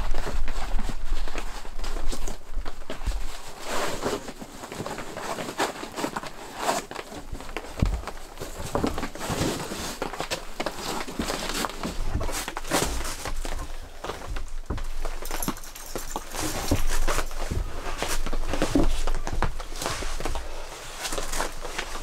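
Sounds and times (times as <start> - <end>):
foam mat rustling: 0.0 - 22.0
footsteps on wooden floor: 7.3 - 9.7, 10.5 - 15.6, 16.4 - 20.5.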